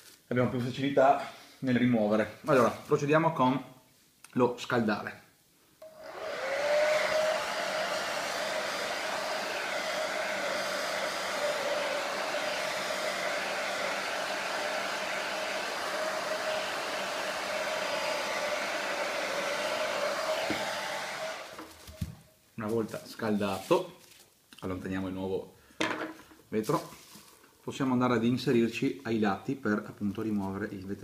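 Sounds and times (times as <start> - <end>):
heat gun blowing air: 5.8 - 22.1.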